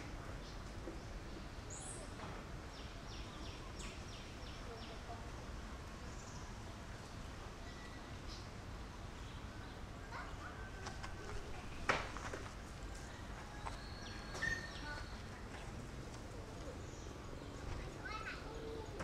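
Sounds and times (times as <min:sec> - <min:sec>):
faint bird chirps: 0:07.6 - 0:08.5, 0:13.0 - 0:15.7.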